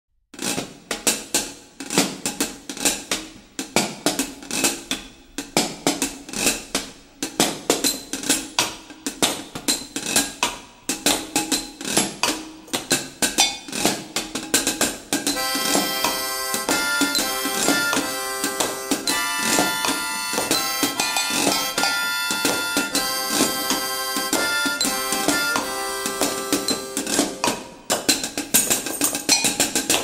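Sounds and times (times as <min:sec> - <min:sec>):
drums and washboard beat: 0:00.4 - 0:30.0
sustained pitched instrument: 0:15.4 - 0:27.6.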